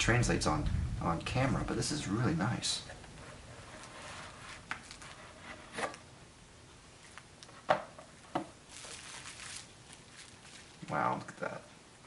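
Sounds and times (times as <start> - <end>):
plastic wrapping crinkling: 3.7 - 6.0, 8.2 - 11.3.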